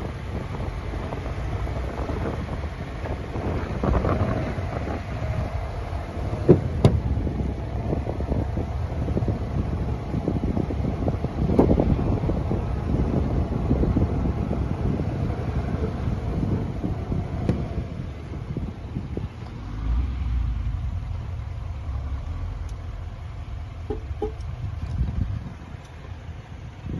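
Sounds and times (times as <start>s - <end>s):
wind buffeting microphone: 0.0s - 26.9s
sharp knocks: 6.4s - 7.0s.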